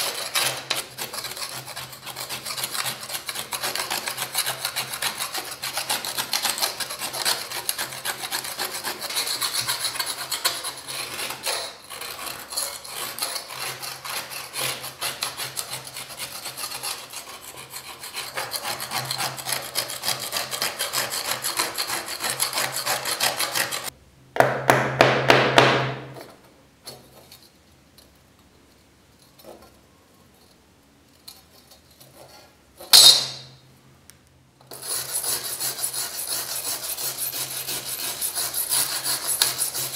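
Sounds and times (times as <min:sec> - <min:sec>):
scraper blade scraping rust: 0:00.0 - 0:23.9, 0:34.7 - 0:39.9.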